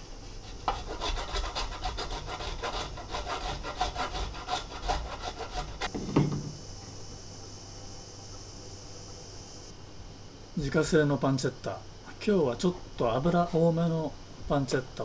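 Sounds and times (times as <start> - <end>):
cheese scraped on metal grater: 0.4 - 5.9
knock: 5.9 - 6.6.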